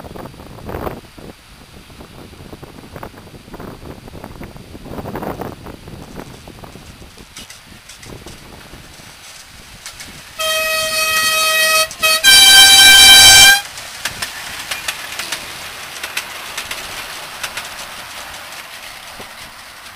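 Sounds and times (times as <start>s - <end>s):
wheels clicking over rail joints: 3.0s - 19.9s
two-tone locomotive horn: 10.4s - 13.7s.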